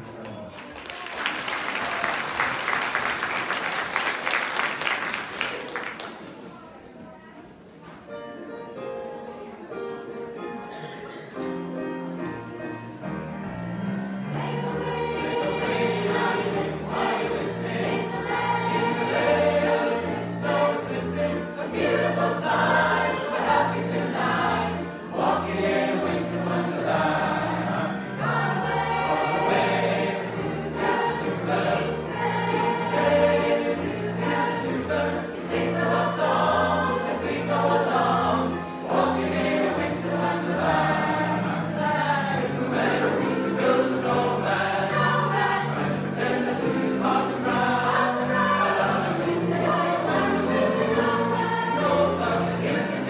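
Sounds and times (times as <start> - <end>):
mixed choir singing: 11.1 - 53.0.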